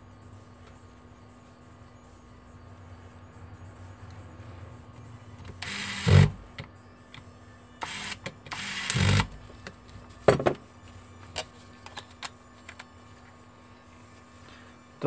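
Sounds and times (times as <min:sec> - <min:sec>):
electric screwdriver running: 0:05.6 - 0:06.4, 0:07.8 - 0:09.3.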